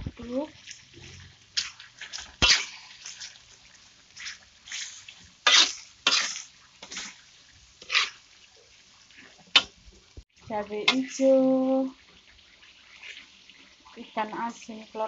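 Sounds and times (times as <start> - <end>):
spatula scraping in a wok: 0.0 - 9.9, 10.7 - 15.0
oil sizzling: 0.0 - 15.0.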